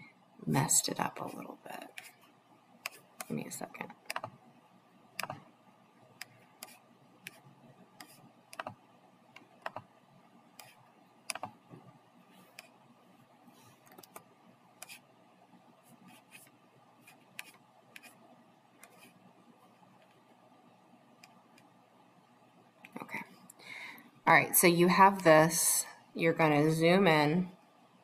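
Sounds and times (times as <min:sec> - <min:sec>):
faint steady background noise: 0:00.0 - 0:28.0
computer mouse and keyboard clicks: 0:04.0 - 0:04.4, 0:05.2 - 0:05.5, 0:08.0 - 0:09.9, 0:10.6 - 0:12.7, 0:13.8 - 0:15.0.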